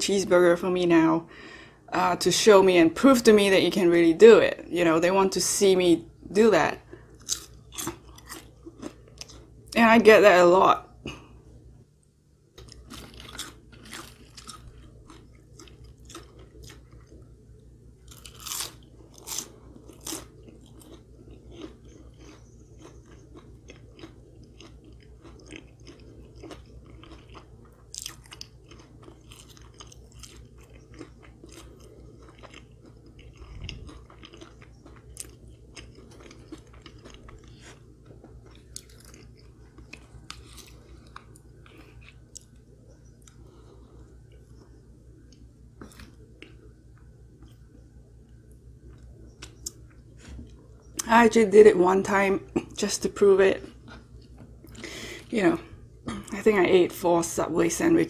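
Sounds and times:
fries crunching: 0:06.4 - 0:10.0, 0:12.5 - 0:47.8
wet chewing: 0:06.9 - 0:09.5, 0:12.6 - 0:17.3, 0:18.0 - 0:47.8.

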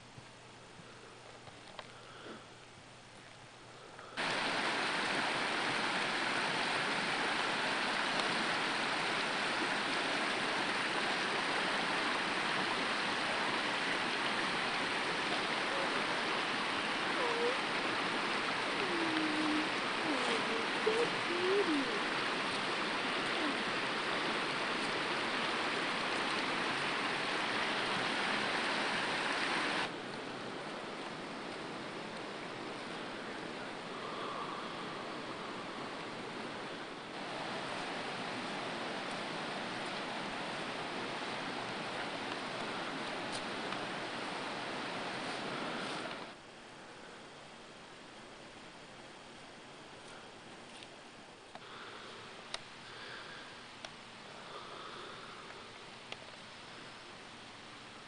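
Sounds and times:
water splashing off waterwheel: 0:04.2 - 0:46.4.

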